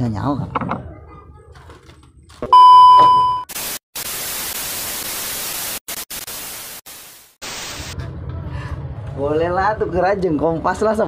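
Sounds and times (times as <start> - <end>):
test-tone beep: 2.5 - 3.5
tv static hiss: 3.5 - 8.0.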